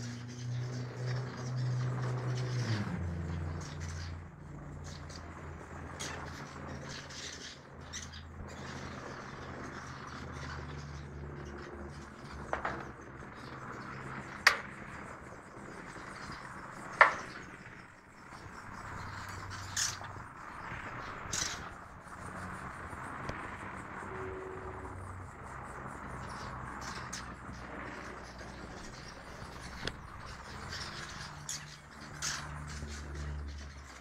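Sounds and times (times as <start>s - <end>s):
steady low hum: 0.0s - 34.0s.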